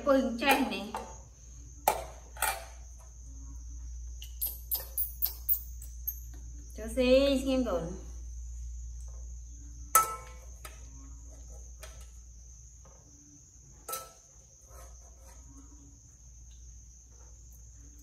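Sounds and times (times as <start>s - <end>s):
metal spoon scraping in pot: 13.9s - 15.6s.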